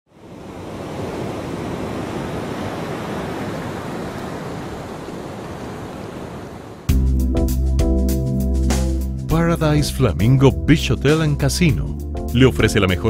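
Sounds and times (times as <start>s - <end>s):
ocean waves rushing: 0.1s - 7.0s.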